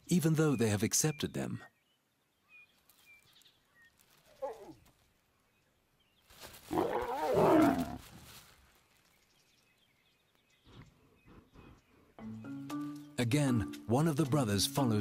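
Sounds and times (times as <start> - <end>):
lion growling: 6.7 - 8.0
lion snarling: 6.7 - 8.0.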